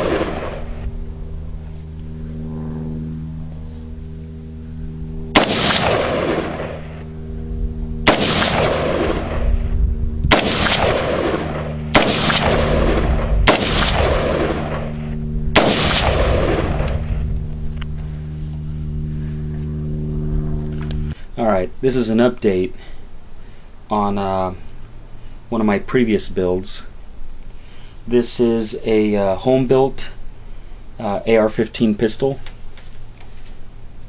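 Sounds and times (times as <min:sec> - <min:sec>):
gunshot echo: 0:00.0 - 0:00.8, 0:05.3 - 0:07.0, 0:08.0 - 0:09.7, 0:10.3 - 0:17.2
gunshots: 0:00.0 - 0:00.8, 0:05.3 - 0:07.0, 0:08.0 - 0:09.7, 0:10.3 - 0:17.2.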